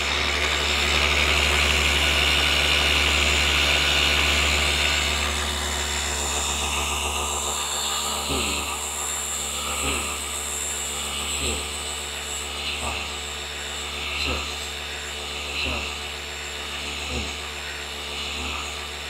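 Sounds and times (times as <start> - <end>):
orbital polisher motor whining: 0.0 - 19.0.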